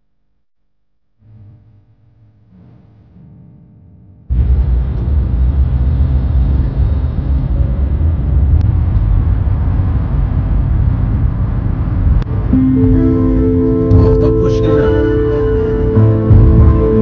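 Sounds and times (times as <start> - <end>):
car cabin road rumble: 4.3 - 12.5.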